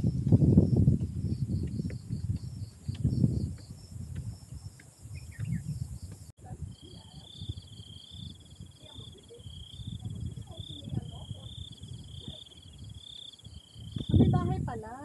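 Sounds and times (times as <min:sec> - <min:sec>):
high insect buzz: 0:00.0 - 0:14.4
insects chirping: 0:00.0 - 0:15.0
footsteps on stone trail: 0:00.1 - 0:06.3.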